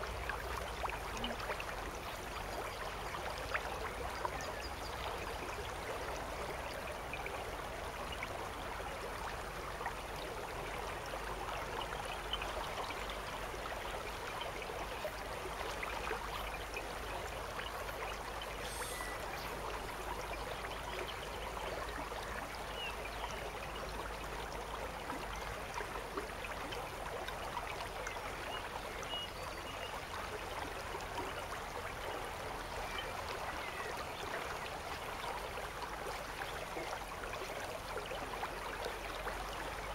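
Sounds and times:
river water rushing: 0:05.6 - 0:22.9.

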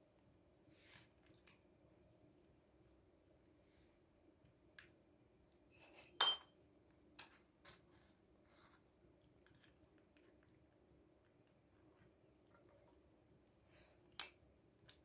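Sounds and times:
metal toy kitchenware clinking: 0:05.8 - 0:06.6.

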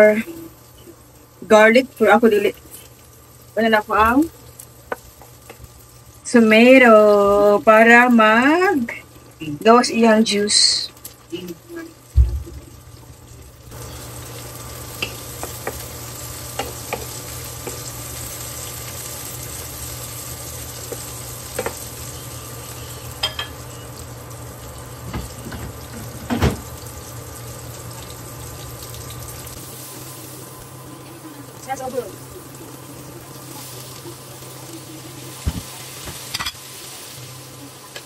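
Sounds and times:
steady low hum: 0:00.0 - 0:38.0
vegetables sizzling in a frying pan: 0:00.0 - 0:38.0
spatula tapping and scraping pan: 0:04.9 - 0:05.6, 0:16.5 - 0:17.9, 0:20.8 - 0:21.8.

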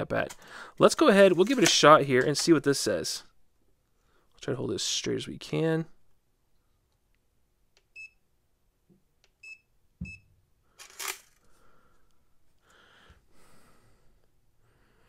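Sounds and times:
handling rustle: 0:01.2 - 0:02.6, 0:10.8 - 0:11.5
short electronic beeps: 0:09.4 - 0:10.3.

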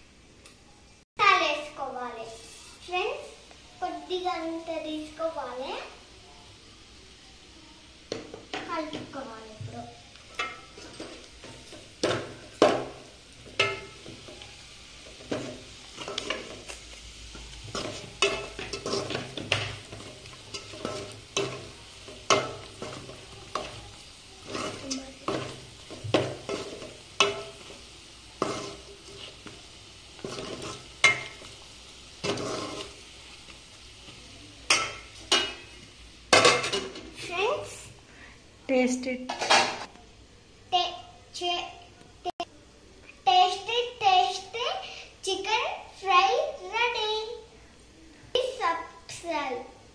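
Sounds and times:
frying sizzle: 0:00.0 - 0:49.9
spoon scraping metal pan: 0:17.4 - 0:27.8, 0:28.4 - 0:29.6, 0:30.2 - 0:31.5, 0:32.2 - 0:33.0.

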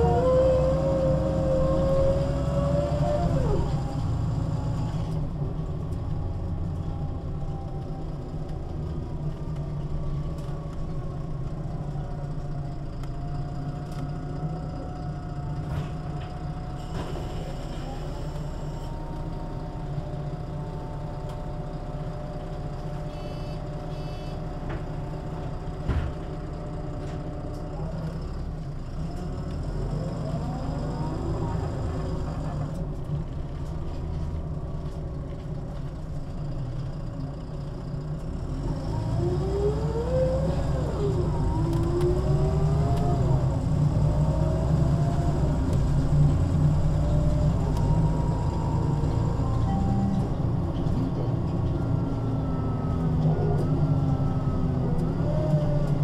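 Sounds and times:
bus engine rumble: 0:00.0 - 0:56.0
thump: 0:25.9 - 0:26.2.

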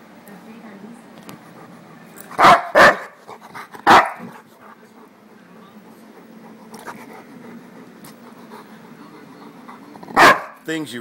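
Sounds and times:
large dog barking: 0:02.4 - 0:03.2, 0:03.8 - 0:04.4, 0:10.0 - 0:10.6.

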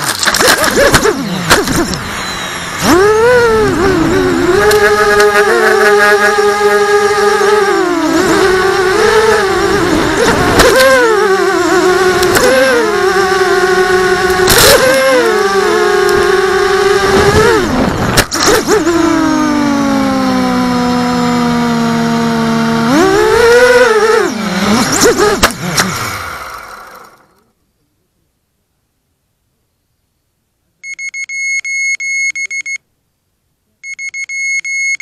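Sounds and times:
drone motors whining: 0:00.0 - 0:27.5.

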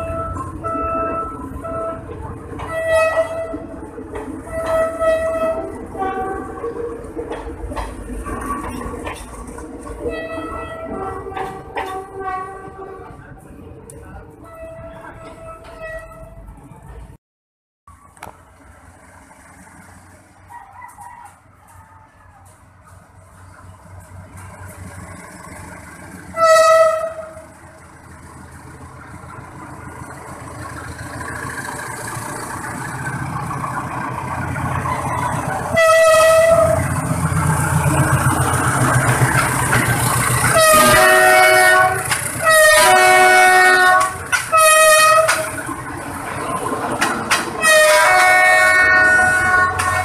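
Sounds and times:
train horn blasts: 0:00.0 - 0:03.8, 0:04.4 - 0:06.7, 0:10.0 - 0:13.2, 0:14.4 - 0:16.4, 0:26.3 - 0:27.6, 0:35.6 - 0:37.0, 0:40.4 - 0:45.6, 0:47.6 - 0:50.0
diesel locomotive engine rumble: 0:00.0 - 0:17.2, 0:17.9 - 0:50.0
train cars rolling by: 0:00.0 - 0:17.2, 0:17.9 - 0:50.0.

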